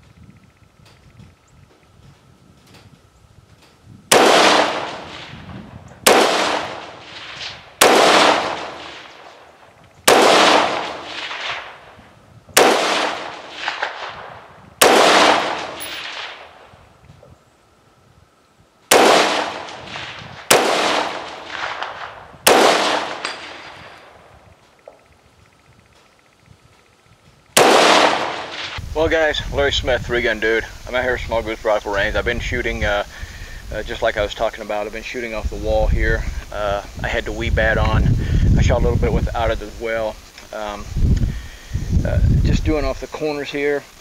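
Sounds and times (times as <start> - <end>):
rifle shots echoing: 4.1 - 12.0, 12.6 - 16.8, 18.9 - 24.5, 27.6 - 28.8.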